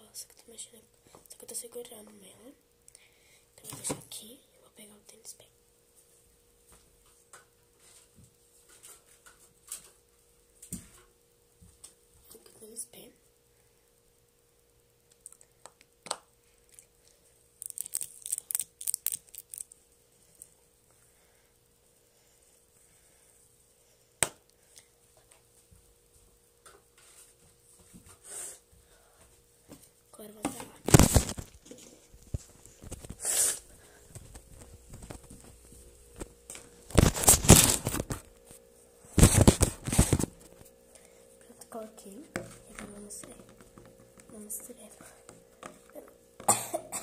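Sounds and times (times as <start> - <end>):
phone microphone rubbing noise: 39.1 - 40.5.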